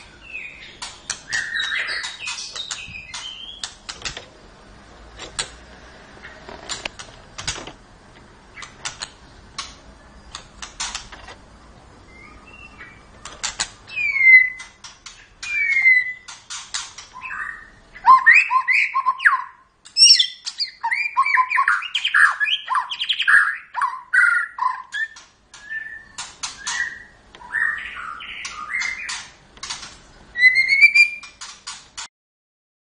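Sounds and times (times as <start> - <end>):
bird chirps and whistles: 0.2 - 3.7, 12.1 - 13.1, 13.9 - 14.7, 15.4 - 16.4, 17.1 - 29.2, 30.3 - 31.4
sharp bird clicks: 0.6 - 4.3, 8.5 - 11.4, 12.2 - 17.6, 18.2 - 32.1
rising whistled bird call: 17.2 - 29.1, 30.4 - 31.3.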